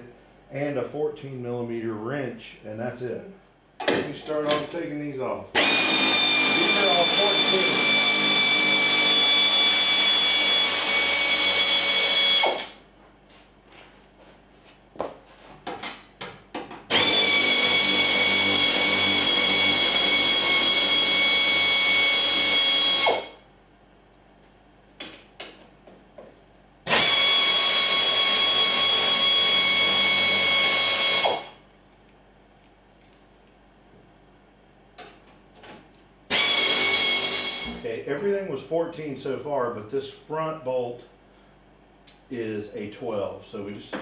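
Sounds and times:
air ratchet whining: 5.6 - 12.8, 26.9 - 31.6.

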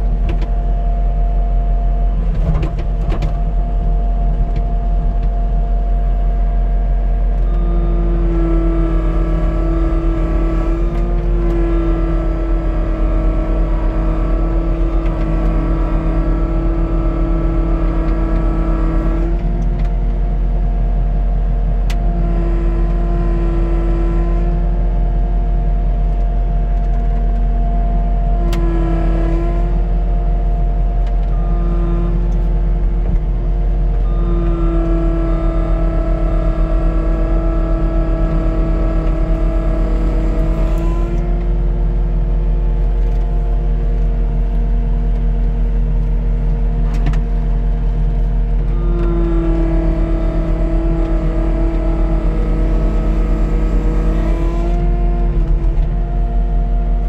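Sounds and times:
diesel engine running at high throttle: 0.0 - 57.0
hydraulic drive whine: 0.0 - 57.0.

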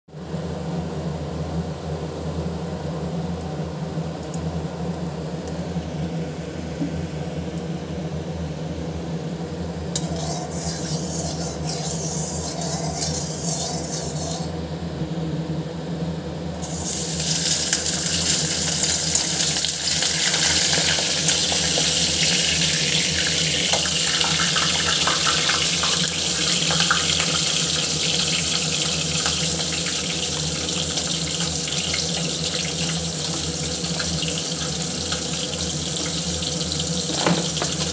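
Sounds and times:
low hum: 4.3 - 16.8
fish frying in hot oil: 16.6 - 37.9.

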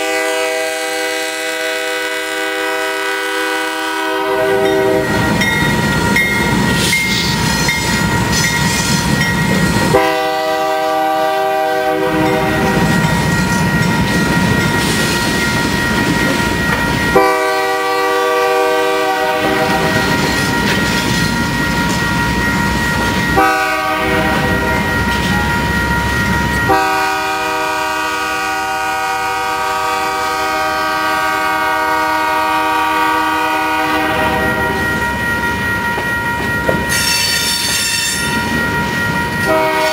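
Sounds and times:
locomotive horn blasts: 0.0 - 5.2, 9.9 - 13.0, 17.1 - 20.1, 23.4 - 24.8, 26.7 - 34.8, 39.5 - 39.9
crossing bell ringing: 0.0 - 39.9
freight train cars rumbling: 0.0 - 39.9.

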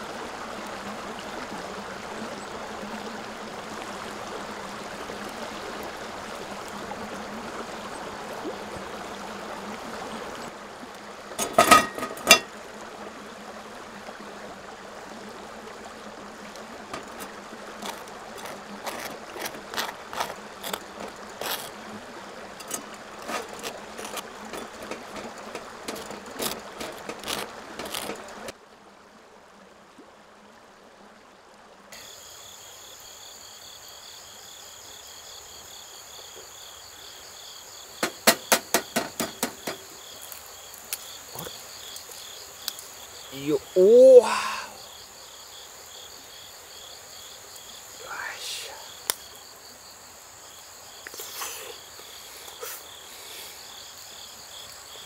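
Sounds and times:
water pouring onto coffee grounds: 16.8 - 21.8
knife scraping toast: 17.8 - 21.7, 22.6 - 25.3, 25.9 - 28.2
high insect trill: 32.0 - 55.0
sharp knocks: 38.0 - 39.8.

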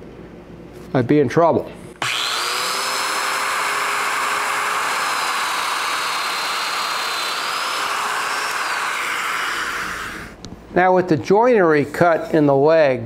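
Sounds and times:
joiner motor whining: 2.0 - 10.4.

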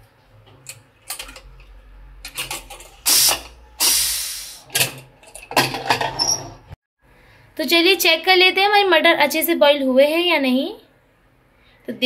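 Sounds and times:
steam hissing: 3.1 - 4.7.

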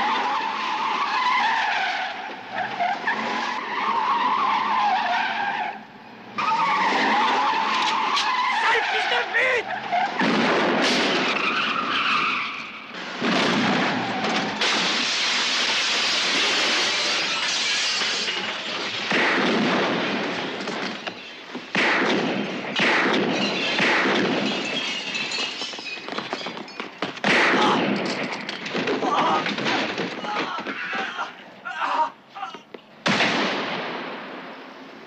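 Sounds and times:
sudden loud crashes: 13.0 - 21.0
shattering glass and debris: 14.0 - 19.2, 23.1 - 27.2.

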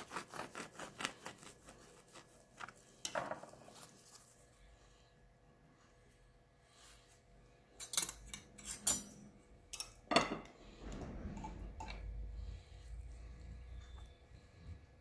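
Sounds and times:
spoon clinking against tableware: 7.8 - 9.2
low handling rumble: 10.7 - 13.8.

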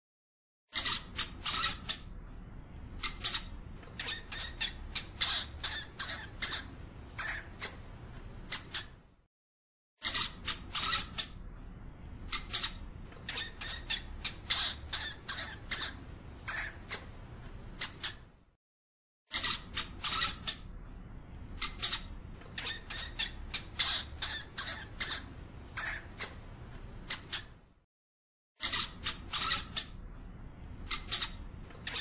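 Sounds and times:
hamster squeaking and chirping: 0.7 - 2.2, 2.8 - 9.0, 10.0 - 11.4, 12.2 - 18.3, 19.3 - 20.7, 21.5 - 27.6, 28.6 - 30.0, 30.8 - 32.0.

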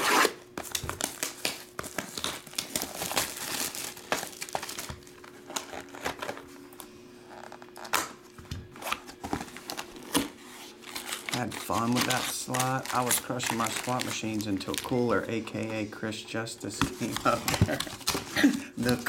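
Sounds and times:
cardboard box crinkling: 0.6 - 6.4, 9.0 - 15.1, 16.8 - 19.0.

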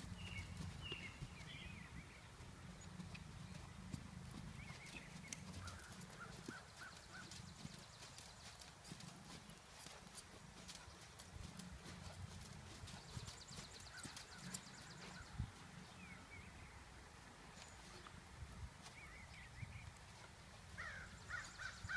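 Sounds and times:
horse hoofbeats on sand: 0.0 - 16.2.

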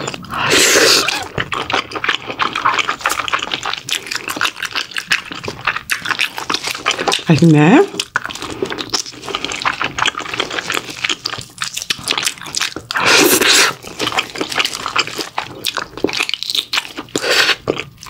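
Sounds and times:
chewing with wet mouth smacks: 0.0 - 18.0.

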